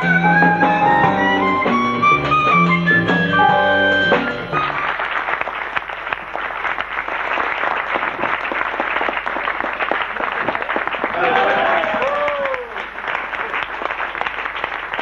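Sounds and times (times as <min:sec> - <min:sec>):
harmonica with band: 0:00.0 - 0:05.0
audience applauding: 0:03.9 - 0:15.0.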